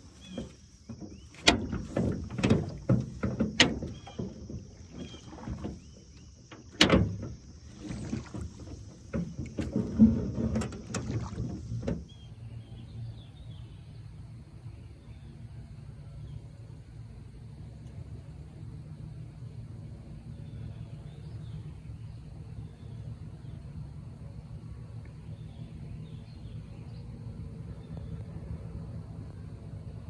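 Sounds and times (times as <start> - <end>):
insect trill: 0.0 - 12.2
oar blades splashing water: 0.0 - 12.2
oars clunking in oarlocks: 0.0 - 12.4.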